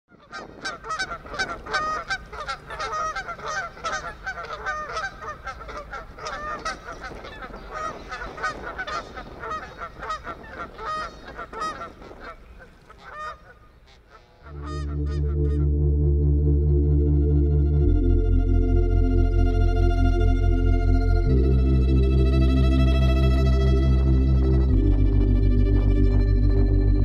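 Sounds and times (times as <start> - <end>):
flock of geese honking: 0.1 - 15.8.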